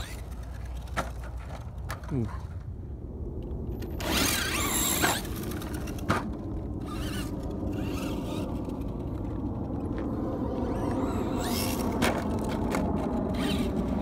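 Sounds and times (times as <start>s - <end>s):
steady low rumble: 0.0s - 14.0s
electric motor whining: 4.0s - 6.0s, 6.8s - 9.0s, 10.1s - 14.0s.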